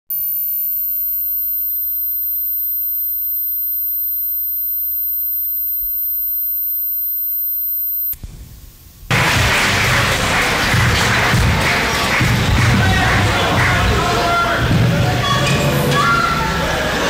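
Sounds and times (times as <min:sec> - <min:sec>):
high-pitched electronic whine: 0:00.1 - 0:08.8.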